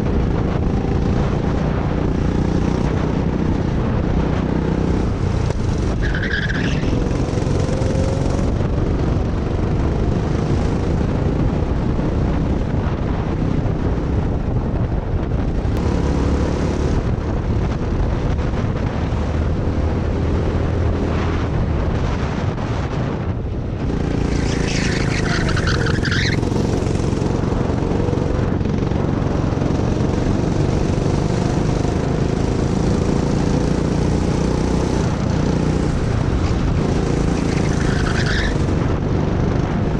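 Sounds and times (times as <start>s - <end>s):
go-kart engine running hard: 0.0s - 21.9s, 23.2s - 39.9s
tyres squealing: 24.4s - 26.5s.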